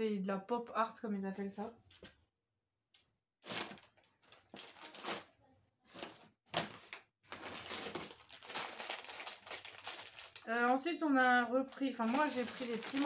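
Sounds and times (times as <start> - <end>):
rustling of purchases: 3.4 - 11.0, 11.6 - 13.0.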